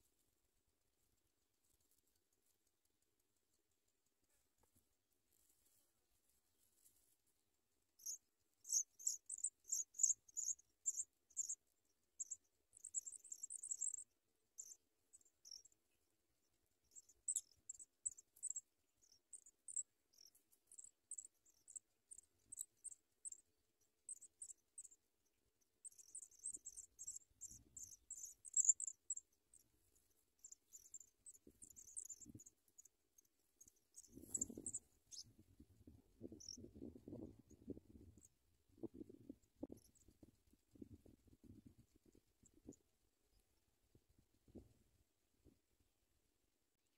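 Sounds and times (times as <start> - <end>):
nestlings cheeping: 8.0 - 11.6, 25.8 - 29.6, 30.4 - 32.9.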